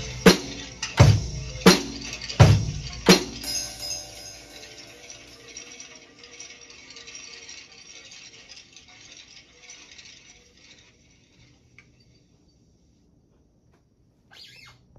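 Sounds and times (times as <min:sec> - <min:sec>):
cymbals ringing: 0:00.0 - 0:07.4.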